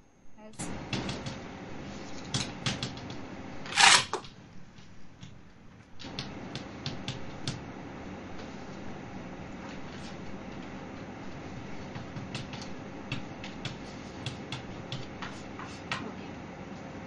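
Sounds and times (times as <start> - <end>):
chalk tapping on blackboard: 11.8 - 16.1.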